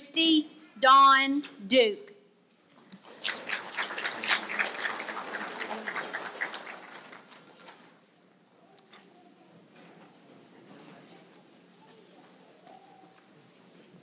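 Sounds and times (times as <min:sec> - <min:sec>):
audience applause: 0:03.0 - 0:08.0.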